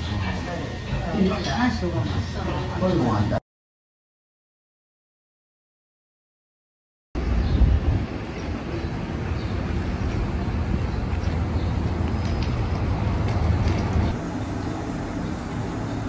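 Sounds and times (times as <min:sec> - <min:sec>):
road traffic rumble: 0:07.2 - 0:16.0.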